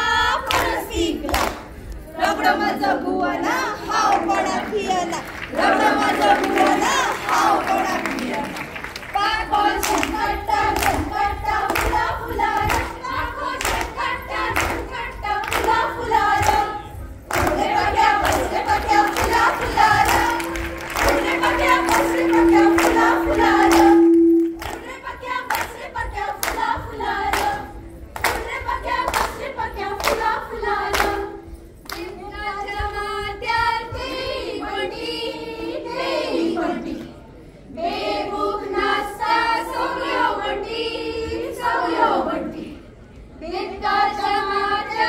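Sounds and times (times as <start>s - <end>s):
rhythmic hand clapping: 0.0s - 34.6s
women singing in unison: 0.0s - 45.0s.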